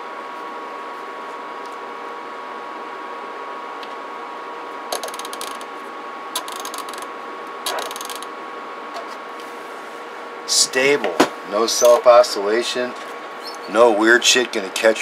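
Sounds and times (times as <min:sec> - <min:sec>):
electronic hum: 0:04.8 - 0:08.9.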